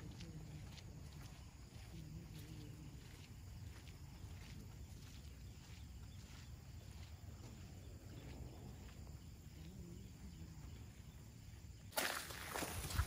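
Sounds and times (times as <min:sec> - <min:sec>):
wind rumbling on microphone: 0:12.5 - 0:13.0.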